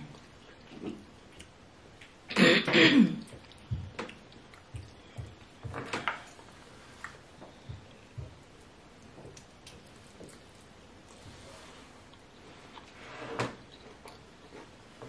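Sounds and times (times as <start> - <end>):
person clearing throat: 2.3 - 3.3
mouth smacks while eating: 3.2 - 5.5.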